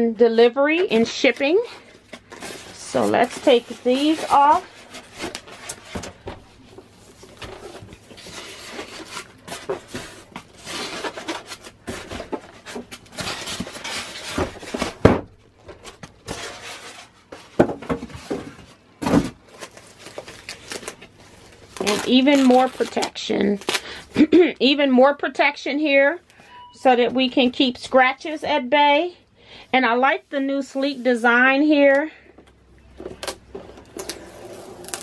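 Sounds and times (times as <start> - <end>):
foam scraping and rustling: 1.5 - 15.0, 16.2 - 23.1.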